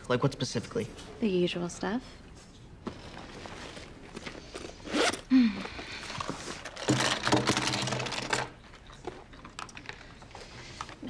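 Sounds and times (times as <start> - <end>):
rummaging in a handbag: 2.8 - 11.0
makeup items clattering onto table: 6.7 - 8.5.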